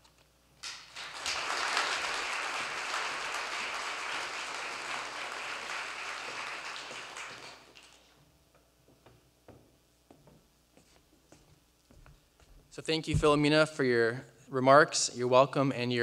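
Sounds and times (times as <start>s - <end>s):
audience applauding: 0.6s - 8.1s.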